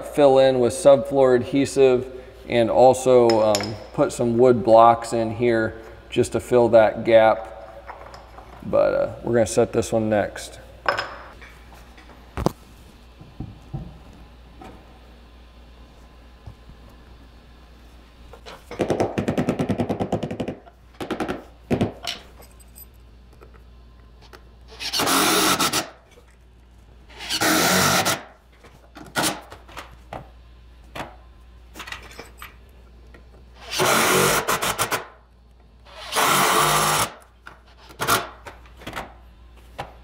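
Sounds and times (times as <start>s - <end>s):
power driver driving screws: 35.9s - 37.2s.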